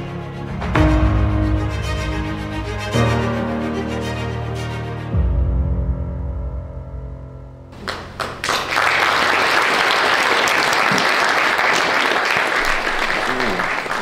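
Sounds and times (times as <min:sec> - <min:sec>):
film music: 0:00.0 - 0:09.5
audience applause: 0:07.8 - 0:14.0.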